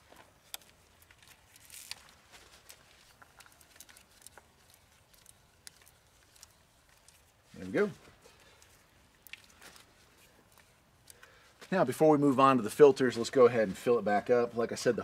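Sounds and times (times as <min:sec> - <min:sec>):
soft glove rustle: 0:00.0 - 0:12.4
faint clicks of oil filter: 0:08.2 - 0:11.4.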